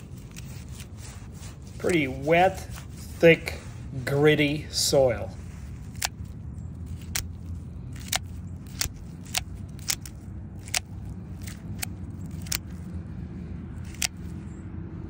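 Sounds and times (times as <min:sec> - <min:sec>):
automatic knife blade clicking: 0:05.8 - 0:12.9, 0:13.8 - 0:14.3.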